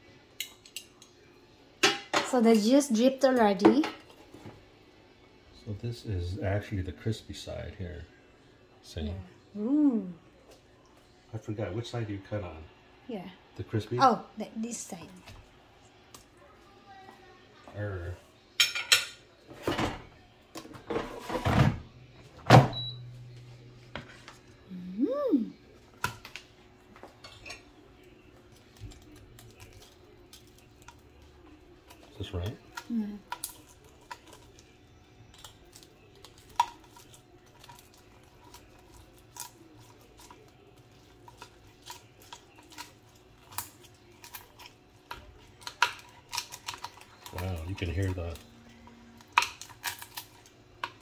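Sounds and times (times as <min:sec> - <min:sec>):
low steady hum: 0:19.8 - 0:51.0
crispy skin crackling under knife: 0:27.5 - 0:51.0.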